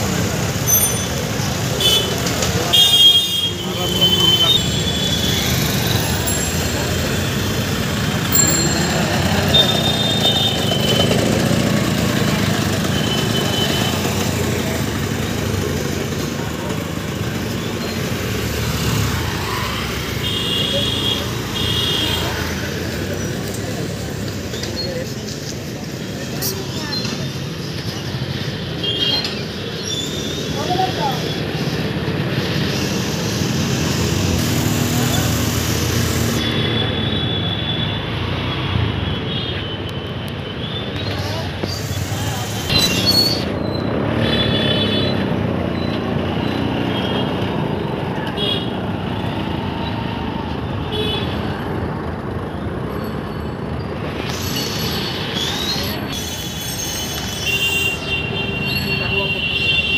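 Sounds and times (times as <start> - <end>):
crowd chatter: 0.0 - 18.2, 18.8 - 36.7, 40.8 - 44.3
motorcycle and scooter engines: 0.0 - 59.9
traffic noise: 0.0 - 59.9.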